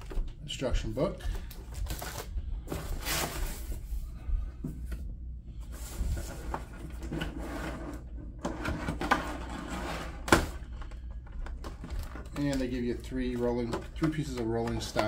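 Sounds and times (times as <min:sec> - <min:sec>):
packaging rustling and scraping: 0:01.4 - 0:04.0, 0:05.6 - 0:15.0.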